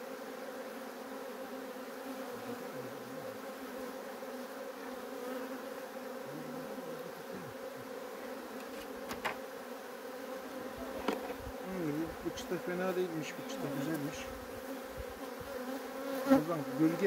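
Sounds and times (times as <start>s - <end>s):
honeybee colony humming: 0.0s - 17.0s
single bees droning past: 0.0s - 17.0s.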